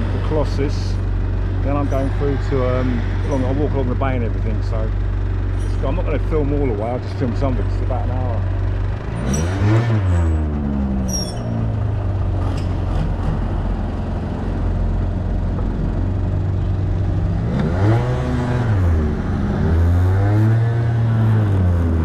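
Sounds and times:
motorbike engine revving: 0:05.5 - 0:14.3, 0:15.4 - 0:22.0.

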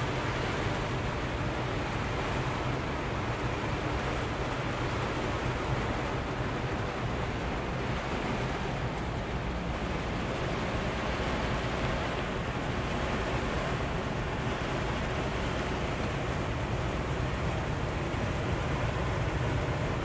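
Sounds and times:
heavy rain on truck cab: 0:00.0 - 0:20.0
truck engine rumble: 0:00.0 - 0:20.0.

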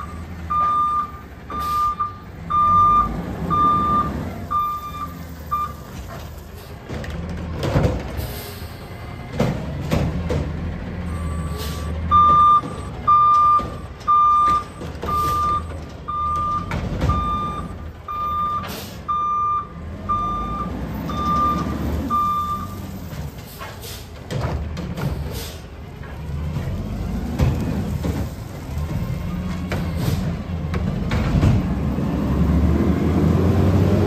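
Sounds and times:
reversing alarm beeping: 0:00.0 - 0:05.8, 0:11.1 - 0:22.8
garbage truck running: 0:00.0 - 0:34.0.

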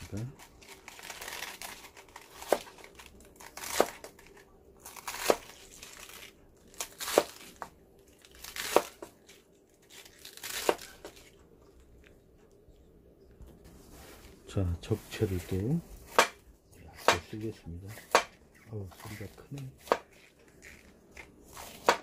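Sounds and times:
knife crunching through lettuce: 0:00.1 - 0:11.4, 0:18.9 - 0:22.0.

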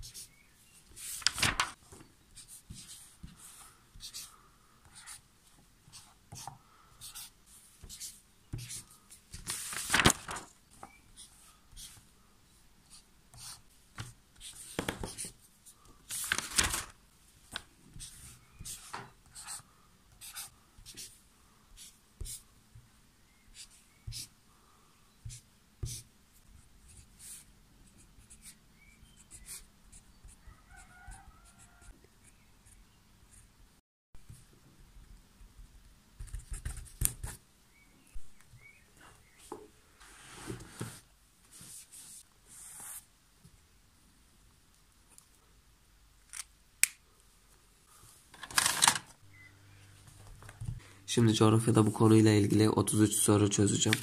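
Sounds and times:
pen scratching on paper: 0:04.9 - 0:05.2, 0:05.9 - 0:08.9, 0:12.9 - 0:13.6, 0:20.2 - 0:21.1
longer paper strokes: 0:08.8 - 0:10.5.

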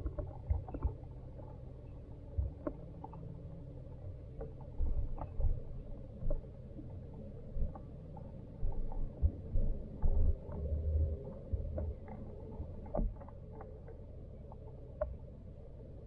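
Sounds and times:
low underwater hum: 0:00.0 - 0:16.0
small ticks and clicks: 0:00.0 - 0:16.0
dull underwater thumps: 0:08.6 - 0:12.1.

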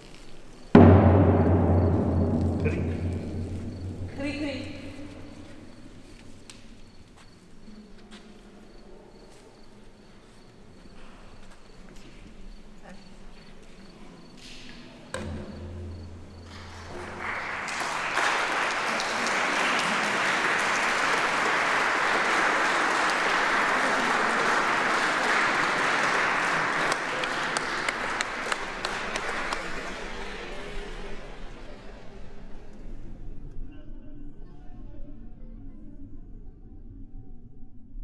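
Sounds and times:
audience applauding: 0:16.4 - 0:30.8.

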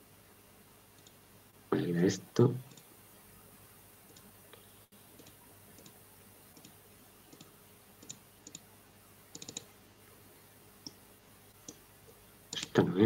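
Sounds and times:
computer mouse clicks: 0:01.0 - 0:01.2, 0:02.7 - 0:02.9, 0:04.1 - 0:04.6, 0:05.2 - 0:08.6, 0:09.3 - 0:09.7, 0:10.8 - 0:11.8, 0:12.5 - 0:12.8.

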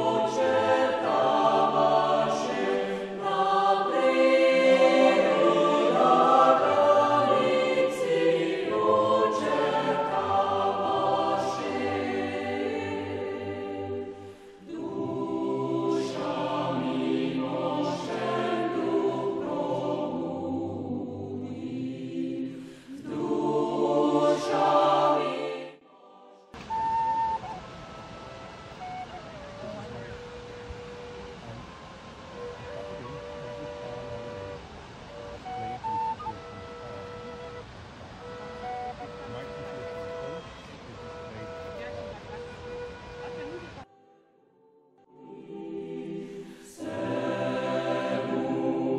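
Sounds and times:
choir singing sustained chords: 0:00.0 - 0:48.9
held flute-like note: 0:26.6 - 0:45.5.

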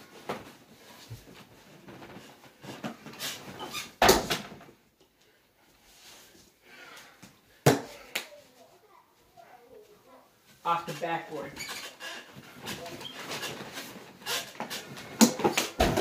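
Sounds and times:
shuffling and bed noise: 0:00.0 - 0:04.0, 0:09.9 - 0:16.0
ball slamming basketball hoop: 0:15.2 - 0:16.0.

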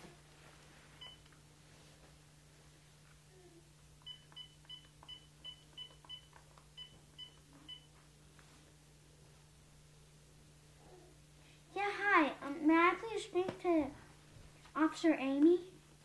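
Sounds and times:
phone keypad beeps: 0:04.0 - 0:07.9.

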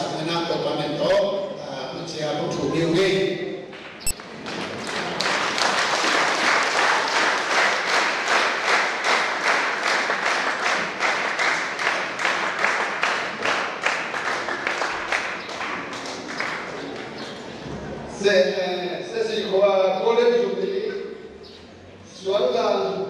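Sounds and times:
audience applauding: 0:04.2 - 0:17.5.

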